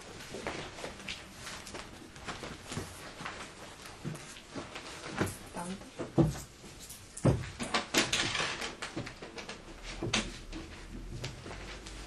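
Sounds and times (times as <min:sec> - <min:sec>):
rustling: 0:00.0 - 0:12.0.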